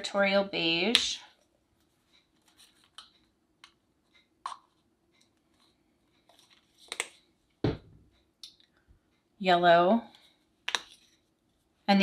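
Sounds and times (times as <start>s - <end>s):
plastic bottle and cup taps: 6.9s - 8.0s.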